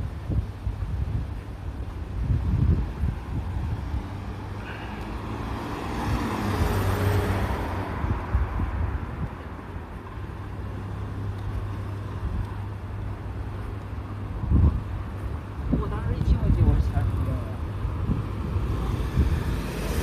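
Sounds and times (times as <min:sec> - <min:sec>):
car passing: 0:02.7 - 0:20.0.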